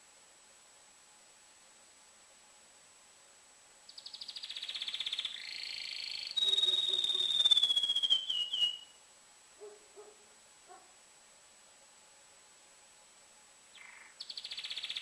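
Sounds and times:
canary singing rapid trills: 0:03.9 - 0:09.0, 0:13.7 - 0:15.0.

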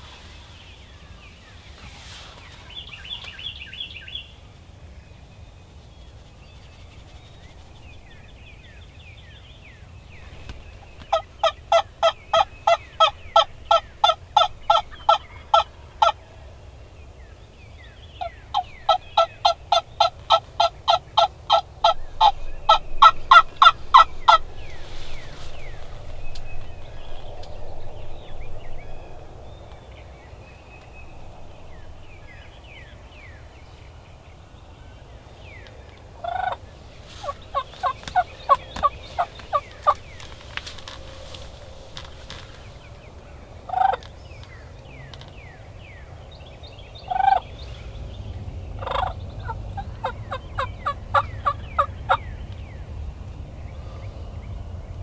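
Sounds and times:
faint songbird chirps: 0:00.0 - 0:55.0
turkey yelping: 0:18.5 - 0:24.4, 0:48.8 - 0:52.2.

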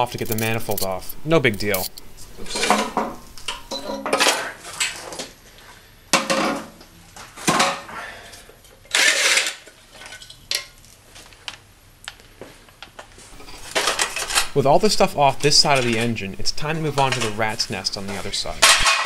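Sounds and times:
metal clanks and knocks: 0:02.4 - 0:04.6, 0:18.1 - 0:19.0
metal scraping rattle: 0:13.4 - 0:16.1, 0:16.9 - 0:19.0.

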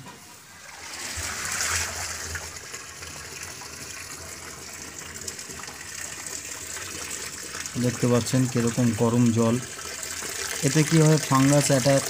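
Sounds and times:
water pouring into metal drum: 0:00.3 - 0:12.0.

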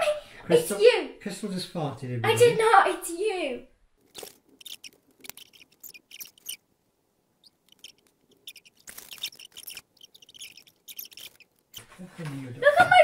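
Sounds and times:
paper rustling: 0:07.9 - 0:12.5.

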